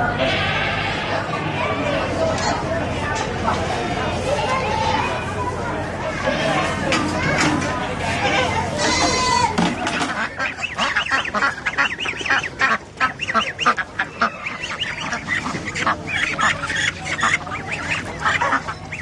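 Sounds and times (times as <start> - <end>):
ducks quacking: 7.9 - 19.0.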